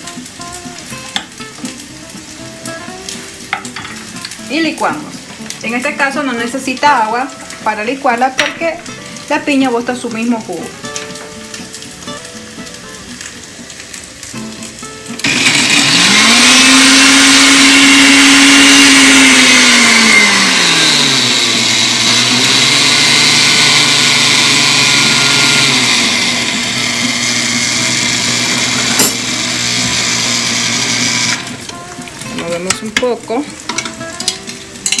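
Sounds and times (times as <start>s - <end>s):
blender motor running: 15.2s - 31.7s.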